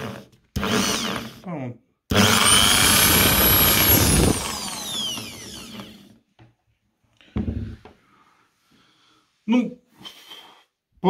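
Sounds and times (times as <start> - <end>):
drill motor whine spinning down: 0.6 - 1.3, 2.1 - 6.2.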